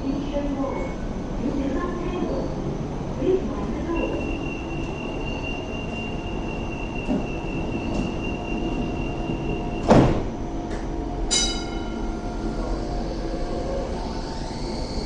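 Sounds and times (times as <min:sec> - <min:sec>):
standing tram hum: 0:00.0 - 0:15.0
tram doors shutting thud: 0:04.7 - 0:12.8
steady high tone: 0:11.3 - 0:15.0.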